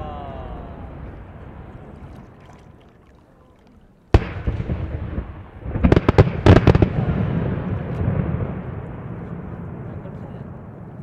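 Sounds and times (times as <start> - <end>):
firework bursts: 4.1 - 9.9
firework rumble: 4.1 - 11.0.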